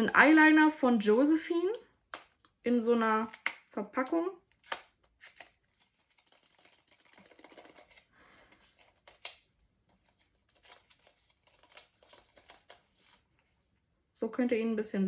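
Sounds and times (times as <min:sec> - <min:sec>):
packaging rustling and crinkling: 0:05.1 - 0:13.4.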